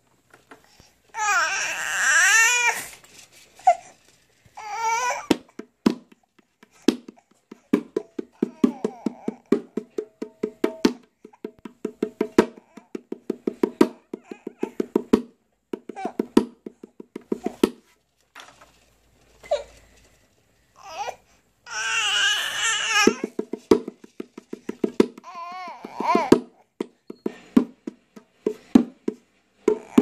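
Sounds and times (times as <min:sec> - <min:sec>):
baby cooing: 0:01.1 - 0:02.9, 0:04.6 - 0:05.4, 0:08.2 - 0:09.8, 0:12.4 - 0:13.0, 0:13.9 - 0:14.8, 0:15.9 - 0:16.2, 0:19.4 - 0:19.8, 0:20.8 - 0:23.4, 0:25.2 - 0:26.7, 0:29.7 - 0:30.0.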